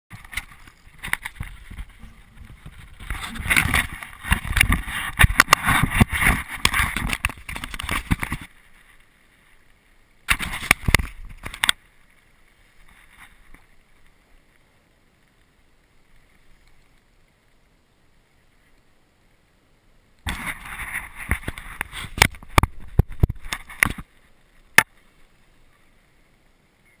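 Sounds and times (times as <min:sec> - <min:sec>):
faint steady hiss: 0:00.1 - 0:27.0
hands handling camera crackling: 0:00.2 - 0:08.6, 0:10.3 - 0:11.8, 0:20.3 - 0:24.1.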